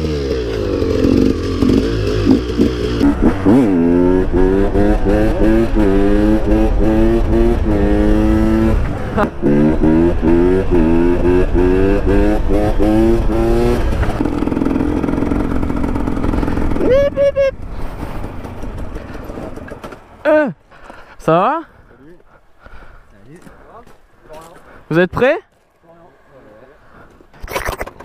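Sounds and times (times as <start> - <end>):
two-stroke motorcycle engine revving: 0.0 - 16.9.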